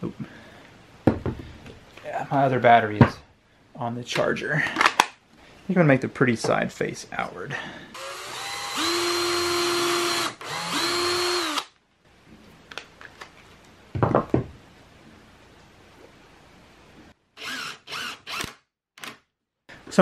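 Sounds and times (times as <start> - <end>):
cordless drill whining: 8.0 - 11.7, 17.4 - 18.6.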